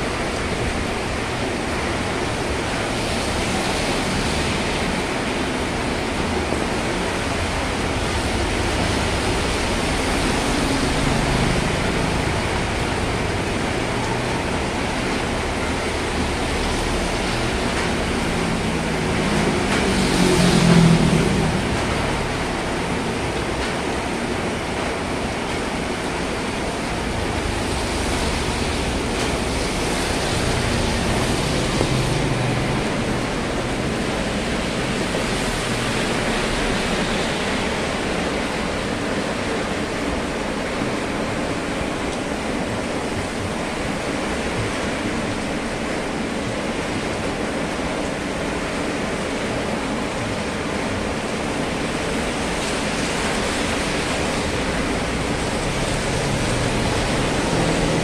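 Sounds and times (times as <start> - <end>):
steady rain: 0.0 - 58.0
wind: 0.0 - 58.0
car driving past on wet road: 15.3 - 23.5, 27.3 - 38.8, 52.6 - 58.0.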